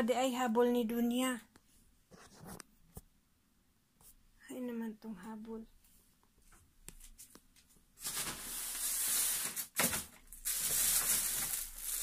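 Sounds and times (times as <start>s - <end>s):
plastic packaging crinkling: 8.0s - 12.0s.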